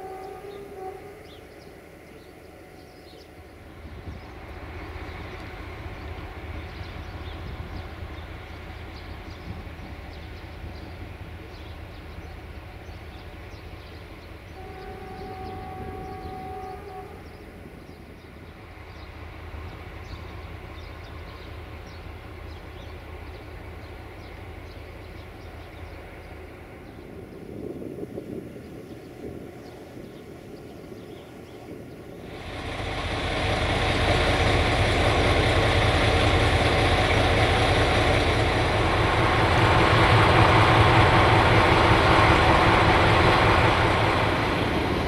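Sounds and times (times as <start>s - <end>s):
train horn chord: 0.0s - 1.7s, 14.5s - 17.5s
diesel locomotive engine rumbling: 0.0s - 45.0s.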